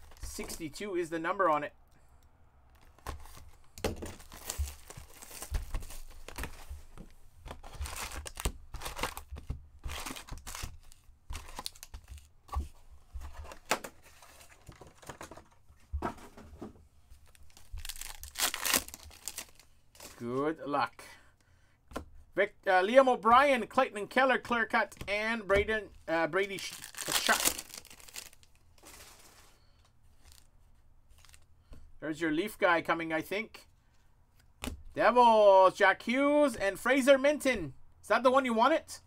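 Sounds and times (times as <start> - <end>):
plastic wrappers tearing and crinkling: 4.1 - 6.5, 7.5 - 12.3, 17.2 - 20.2, 26.5 - 29.2.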